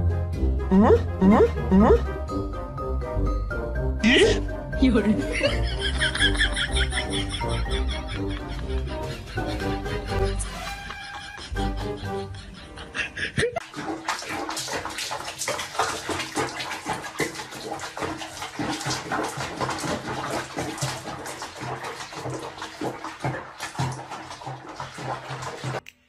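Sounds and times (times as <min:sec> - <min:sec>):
water sloshing and splashing: 0:13.6 - 0:25.8.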